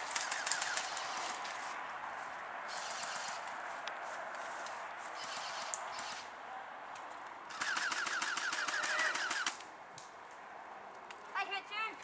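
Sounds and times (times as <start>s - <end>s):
airsoft rifle automatic burst: 0.0s - 1.4s, 7.5s - 9.6s.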